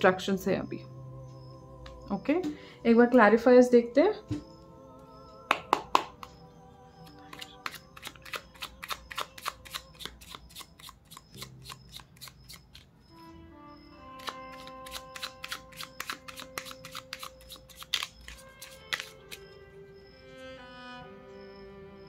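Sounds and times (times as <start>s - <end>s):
soft background music: 0.0s - 22.0s
cards being shuffled: 7.1s - 12.9s, 14.2s - 19.4s.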